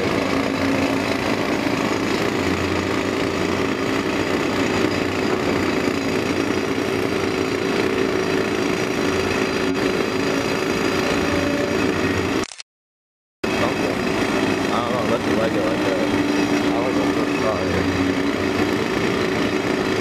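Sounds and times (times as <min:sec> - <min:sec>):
heavy diesel engines running: 0:00.0 - 0:12.5, 0:13.4 - 0:20.0.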